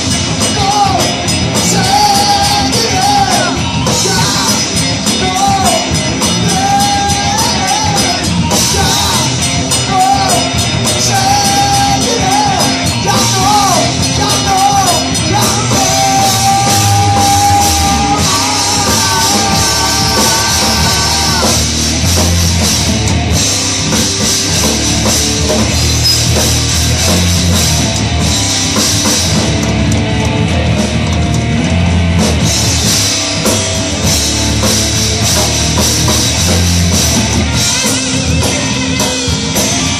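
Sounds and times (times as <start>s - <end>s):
rock band playing: 0.0s - 39.9s
man singing into microphone: 0.5s - 21.6s.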